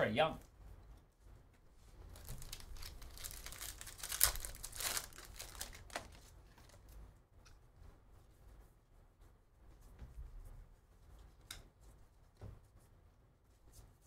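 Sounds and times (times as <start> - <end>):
foil wrappers torn and crinkled: 2.2 - 6.8.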